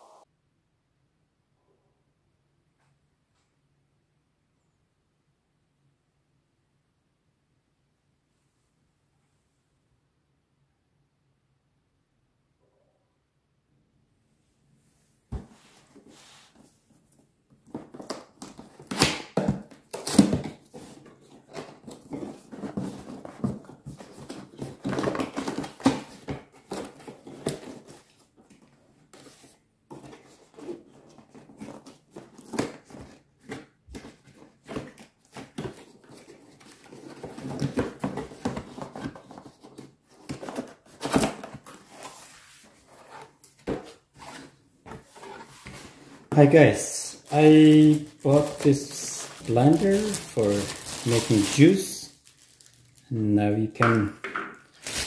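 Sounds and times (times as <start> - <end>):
cardboard scraping and rustling: 17.7 - 52.7, 54.7 - 55.0.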